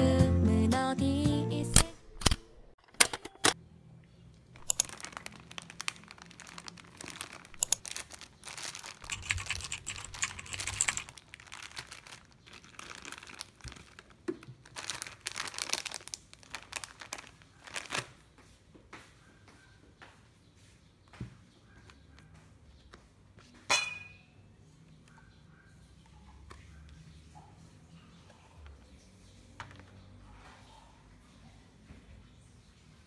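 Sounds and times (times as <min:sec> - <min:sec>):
plastic packaging crinkling: 0:04.6 - 0:18.3.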